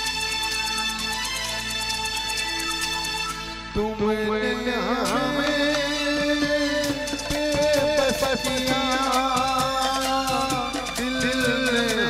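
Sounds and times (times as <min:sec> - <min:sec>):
film music wavering melody: 0:00.0 - 0:03.9
light percussion beat: 0:05.0 - 0:12.0.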